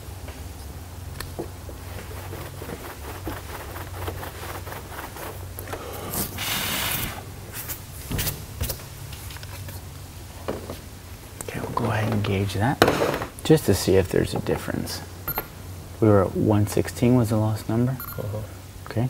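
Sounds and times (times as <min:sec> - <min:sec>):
towel rubbing on car panel: 0:01.8 - 0:05.6
steady low hum: 0:13.6 - 0:19.0.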